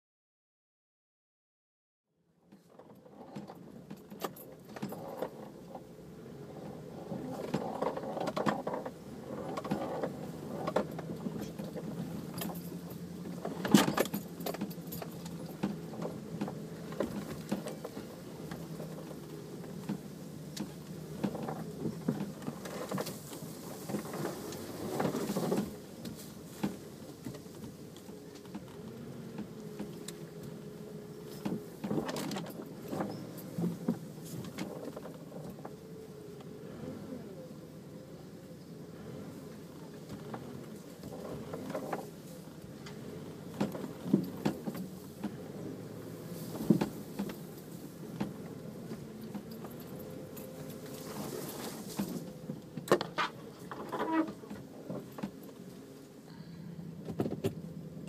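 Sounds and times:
vehicle engine drone: 2.3 - 58.0
loose rattling and jangling: 2.6 - 5.9, 6.5 - 36.0.

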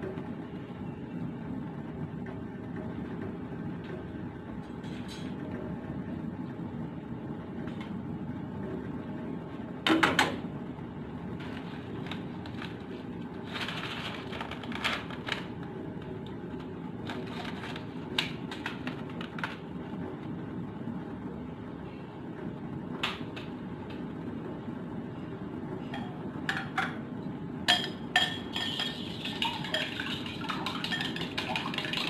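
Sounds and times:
metal ladle clattering on pot: 27.7 - 32.0.

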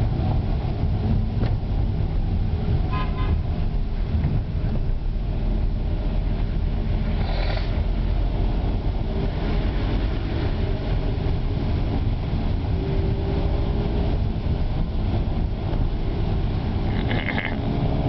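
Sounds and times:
vehicle engine and road rumble: 0.0 - 18.0
tyre hiss on wet road: 7.0 - 7.8.

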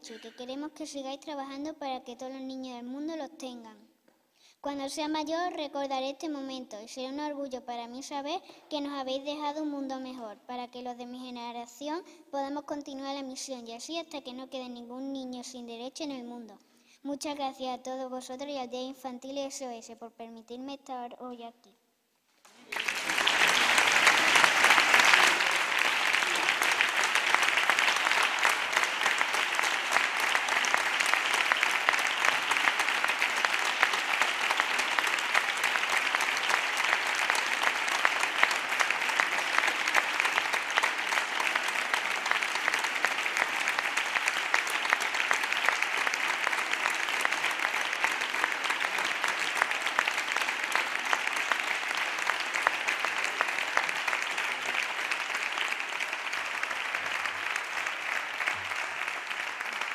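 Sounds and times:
large crowd applauding: 22.4 - 59.9.

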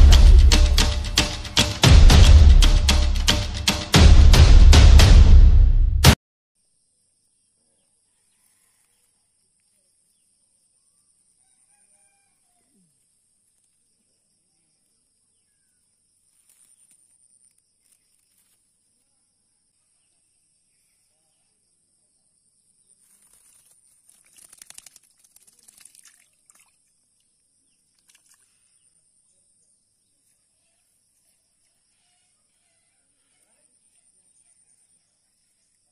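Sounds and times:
distant rooster crowing: 11.4 - 12.6
splashing in shallow water: 23.1 - 27.0, 27.9 - 28.8.

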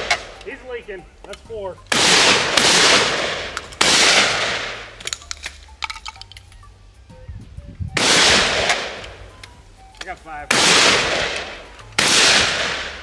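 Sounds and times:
sharp metallic clicks: 0.0 - 6.7, 8.0 - 13.0
shotgun blasts: 1.9 - 5.0, 8.0 - 9.1, 10.5 - 13.0.

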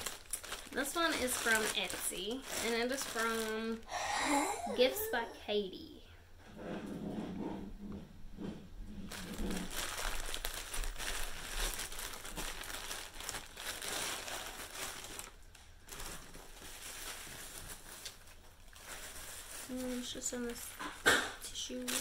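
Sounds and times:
plastic and tissue paper crinkling: 0.0 - 3.9, 9.0 - 22.0.

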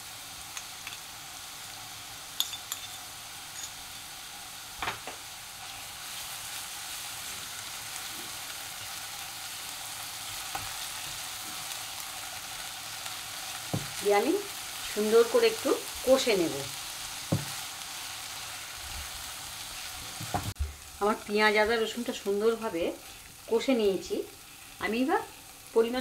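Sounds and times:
paste sizzling in hot oil: 0.0 - 26.0
spoon clinking on steel bowl: 2.4 - 3.8
knock: 17.3 - 17.5.

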